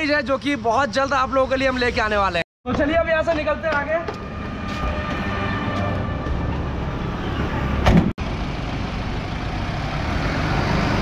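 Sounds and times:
street traffic: 0.0s - 11.0s
vehicle engine: 3.6s - 11.0s
car door slamming: 7.8s - 8.1s.

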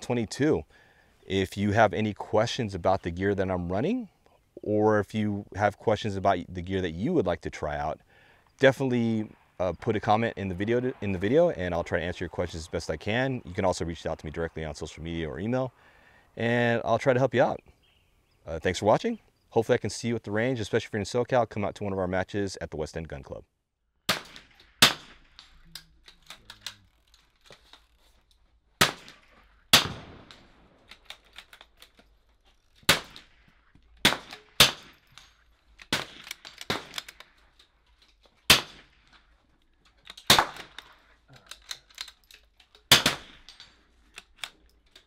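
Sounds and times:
rifle shots echoing: 8.8s - 13.5s, 24.1s - 25.4s, 28.8s - 31.0s, 32.9s - 35.1s, 35.9s - 37.1s, 38.5s - 39.1s, 40.2s - 40.9s, 42.9s - 43.6s
rifle bolt clicks: 29.8s - 32.1s, 34.0s - 38.4s, 39.1s - 45.0s.

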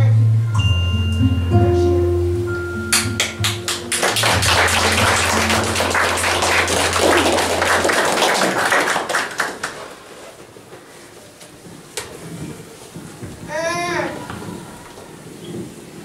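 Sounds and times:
audience applauding: 2.9s - 10.4s.

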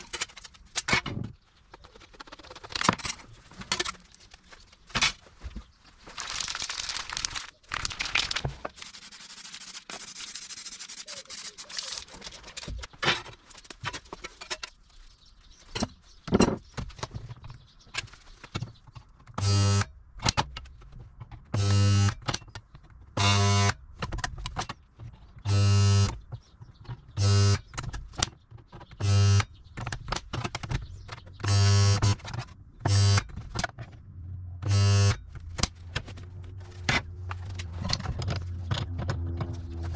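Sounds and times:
workshop tool buzzing: 19.4s - 19.9s, 21.6s - 22.2s, 23.2s - 23.7s, 25.5s - 26.2s, 27.2s - 27.6s, 29.0s - 29.4s, 31.4s - 32.2s, 32.9s - 33.2s, 34.6s - 35.2s.

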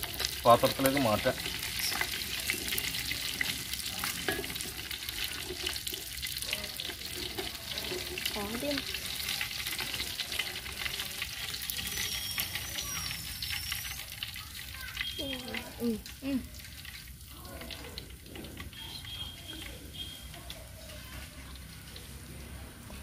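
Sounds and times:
fish sizzling in hot oil: 0.0s - 23.0s
spatula and spoon scraping pan: 1.0s - 15.1s.

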